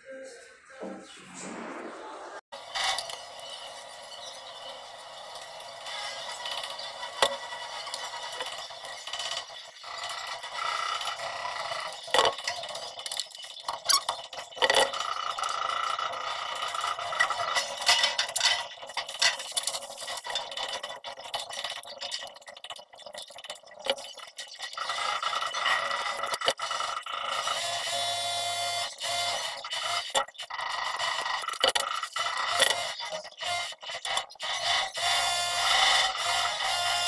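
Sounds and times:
plastic pipes knocking and scraping: 0:06.2 - 0:27.1, 0:28.8 - 0:37.0.

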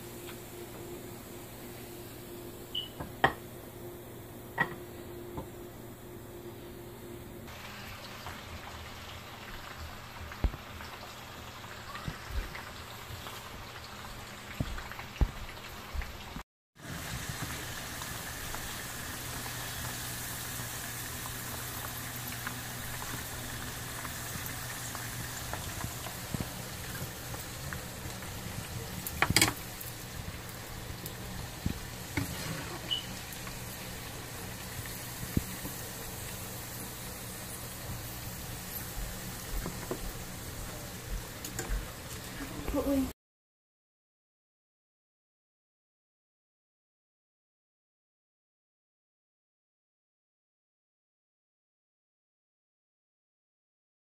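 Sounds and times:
food sizzling in hot oil: 0:07.5 - 0:43.0.

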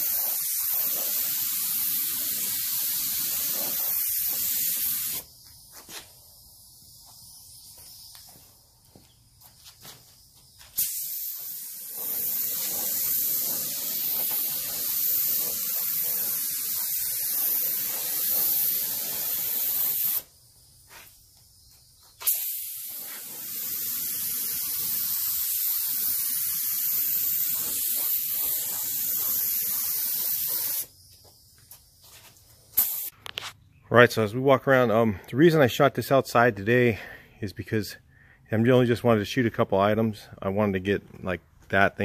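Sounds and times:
paint spray gun hissing: 0:00.0 - 0:33.2.

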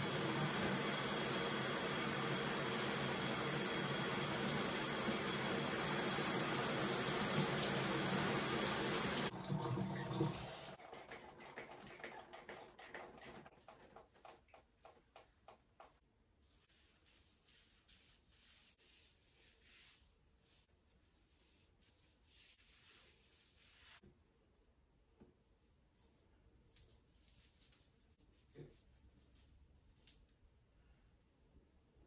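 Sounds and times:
shower spray running over hair: 0:00.0 - 0:09.3.

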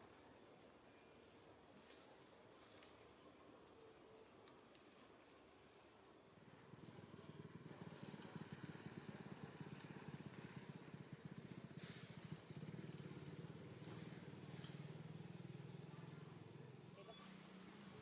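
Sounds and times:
small engine droning: 0:06.4 - 0:18.0.

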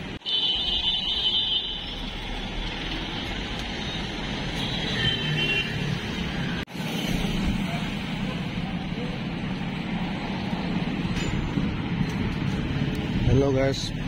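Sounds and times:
cars and motorbikes passing: 0:01.9 - 0:14.0.

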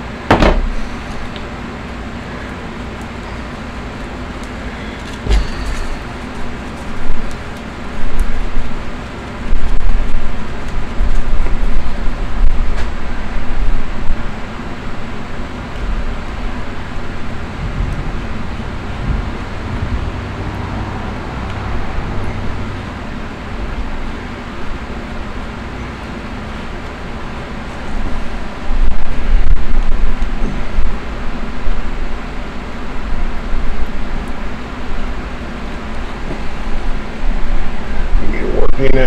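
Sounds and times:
low buffeting: 0:00.0 - 0:39.0
rumbling background noise: 0:00.0 - 0:39.0.

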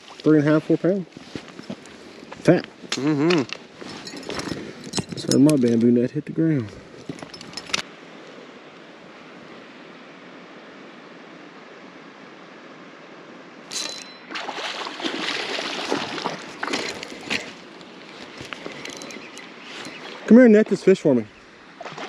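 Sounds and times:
steady background hiss: 0:00.0 - 0:21.9
fish splashing at water surface: 0:13.7 - 0:17.5.

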